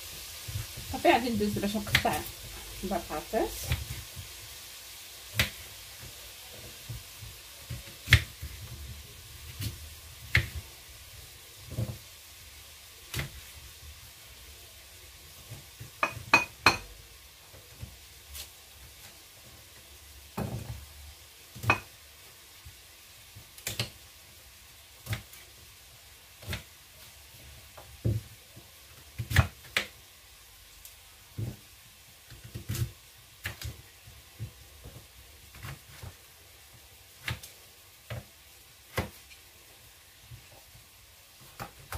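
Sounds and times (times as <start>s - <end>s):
knife cutting sweet potato: 7.8s - 8.6s.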